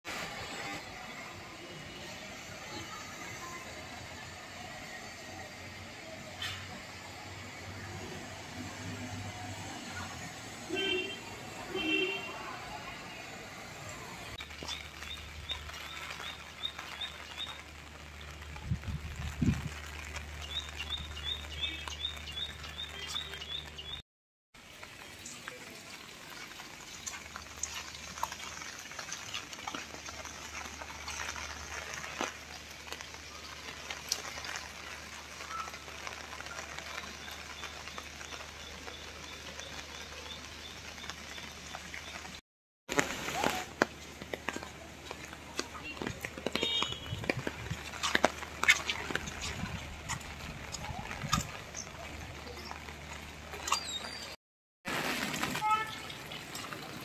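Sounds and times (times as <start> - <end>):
rain pattering: 0.1 - 24.0, 24.6 - 57.0
drips and ticks: 14.3 - 24.0, 24.6 - 42.4, 43.4 - 54.3, 55.0 - 57.0.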